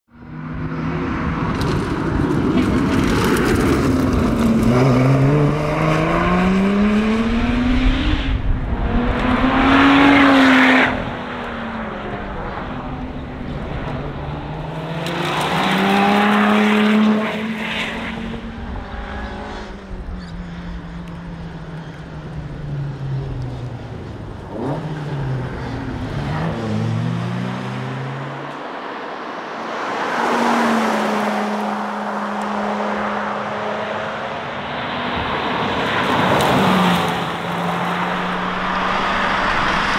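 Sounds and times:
car accelerating hard past: 0:01.0 - 0:21.9, 0:24.4 - 0:39.9.

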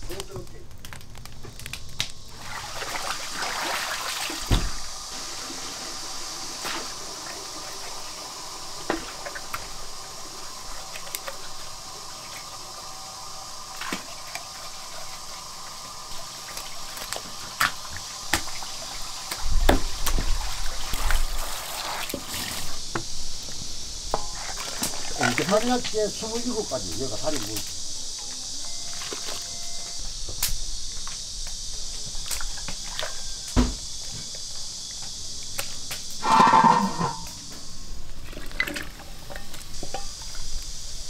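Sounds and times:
water flowing and splashing: 0:02.3 - 0:23.3, 0:24.1 - 0:27.4.

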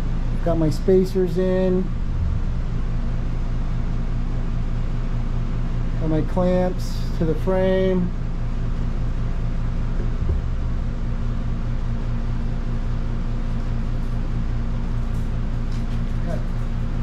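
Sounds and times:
low mechanical hum: 0:00.0 - 0:17.0
brief low thump: 0:01.9 - 0:03.1, 0:10.2 - 0:10.9.

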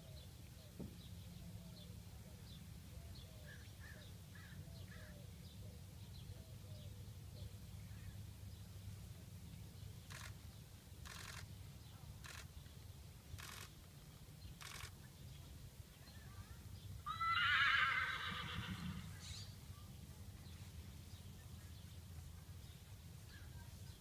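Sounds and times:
horse whinnying: 0:17.1 - 0:19.2.

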